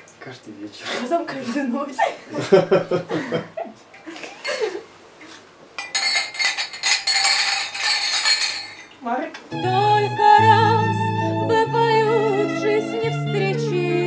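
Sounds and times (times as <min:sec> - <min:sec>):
people talking and chuckling: 0:01.5 - 0:04.9
glasses clinking: 0:05.8 - 0:09.0.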